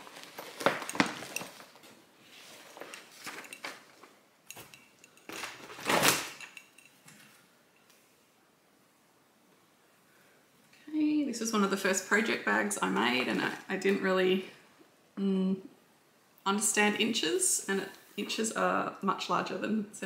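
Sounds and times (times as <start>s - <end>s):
paper and vinyl rustle: 0.0s - 4.2s.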